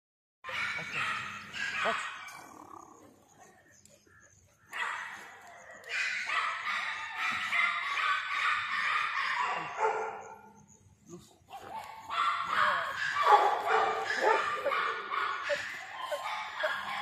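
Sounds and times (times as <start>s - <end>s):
dog barking: 0.4s - 2.5s, 4.7s - 10.6s, 11.5s - 17.0s
dog yelping: 0.5s - 2.5s, 11.7s - 17.0s.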